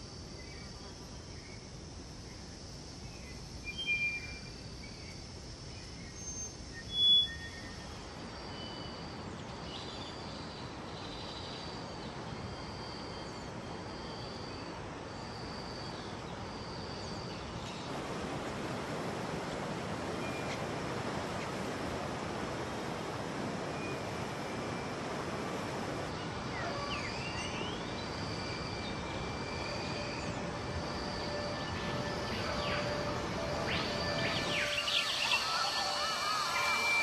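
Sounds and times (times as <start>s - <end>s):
river water rushing: 17.9s - 26.6s
high wildlife chirps and whistles: 26.1s - 37.0s.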